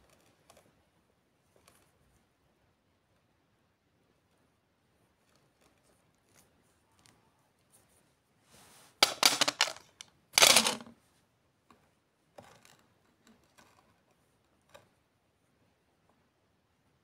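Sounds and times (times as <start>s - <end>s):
rustling scrape on cloth: 7.7s - 9.0s
polished stones clicking: 9.0s - 10.9s.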